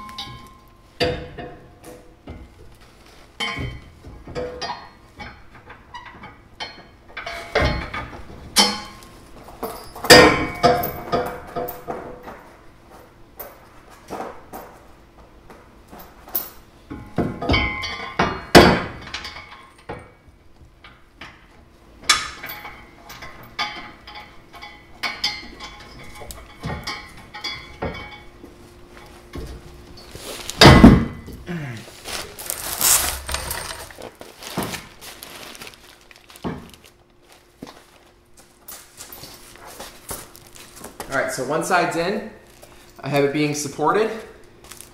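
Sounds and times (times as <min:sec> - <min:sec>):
steel hitch clanking on metal: 0:09.6 - 0:12.2.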